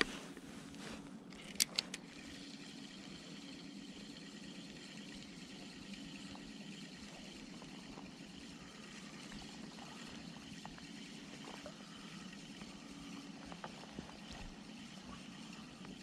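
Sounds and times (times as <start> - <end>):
spinning reel clicking: 1.4 - 13.7.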